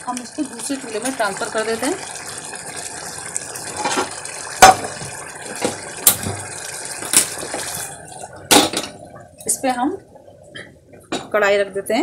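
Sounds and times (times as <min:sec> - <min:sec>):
water boiling and bubbling: 0:00.0 - 0:12.0.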